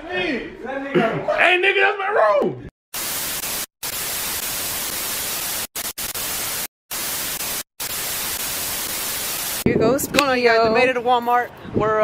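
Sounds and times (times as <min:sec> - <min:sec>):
tv static hiss: 0:03.0 - 0:09.7.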